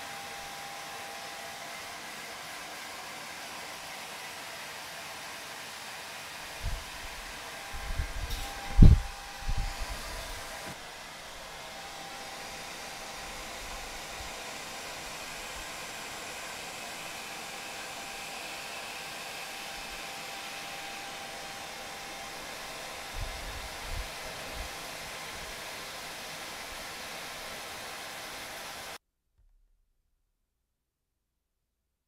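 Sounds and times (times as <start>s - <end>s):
hair dryer blowing: 0.0s - 29.0s.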